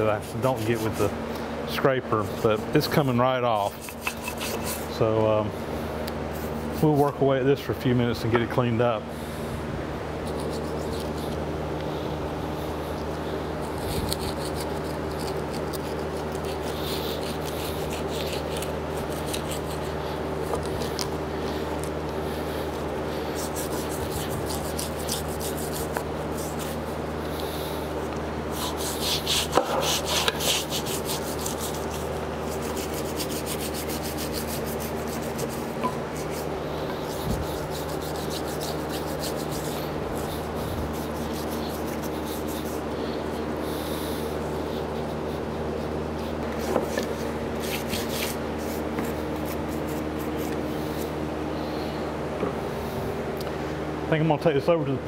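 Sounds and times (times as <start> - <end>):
steady hum: 0.0 - 55.0
scraper scraping paint: 2.4 - 5.0, 13.6 - 51.2.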